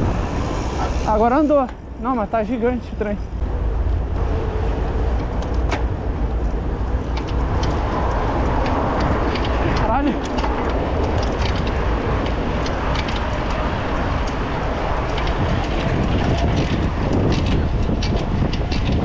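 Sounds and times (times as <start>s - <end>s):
wind on microphone: 0.0s - 2.2s, 3.3s - 19.0s
bicycle tyre road noise: 0.0s - 19.0s
small clicks and rattles: 5.1s - 19.0s.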